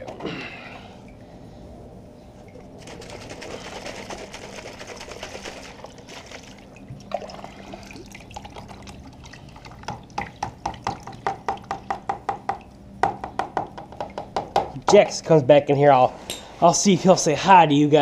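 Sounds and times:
water glugging from spout: 0:05.7 - 0:14.9.

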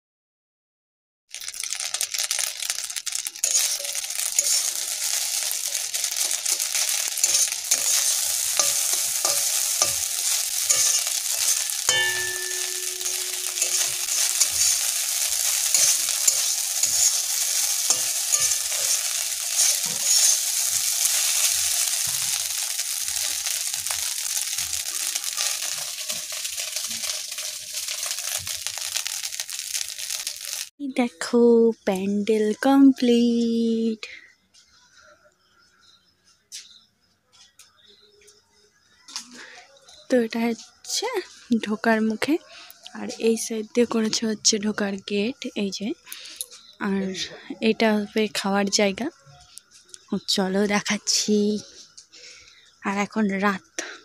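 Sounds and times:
rice sizzling in a pan: 0:01.3 - 0:30.8
steel spatula scraping pan: 0:03.4 - 0:30.6.

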